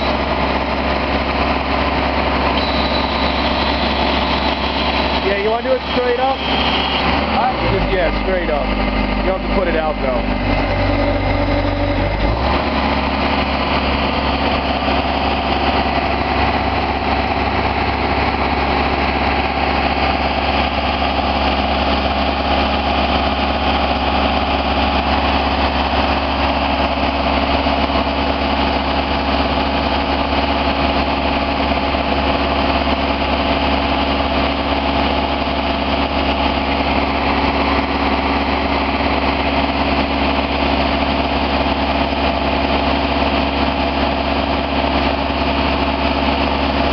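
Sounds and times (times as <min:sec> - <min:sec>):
diesel engine running: 0:00.0 - 0:46.9.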